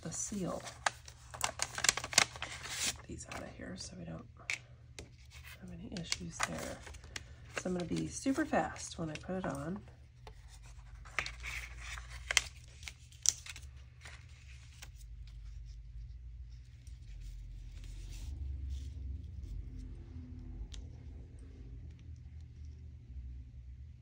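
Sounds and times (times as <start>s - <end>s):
paper rustling: 0.0s - 3.5s, 4.5s - 19.9s.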